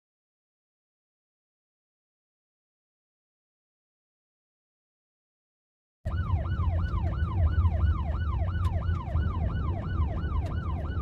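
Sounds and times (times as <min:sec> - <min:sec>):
emergency vehicle siren: 0:06.1 - 0:11.0
low rumble: 0:06.1 - 0:11.0.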